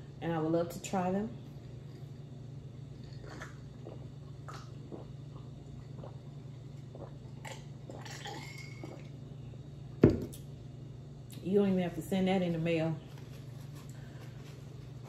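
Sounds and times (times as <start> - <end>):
person gulping water: 2.9 - 9.2
glass knocked on table: 10.0 - 10.3.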